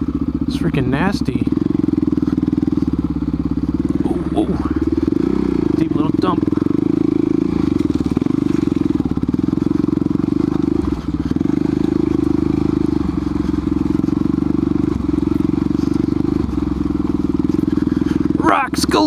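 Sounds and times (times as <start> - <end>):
dirt bike engine at low throttle: 0.0 - 19.0
tyres over loose rocks and gravel: 6.2 - 18.9.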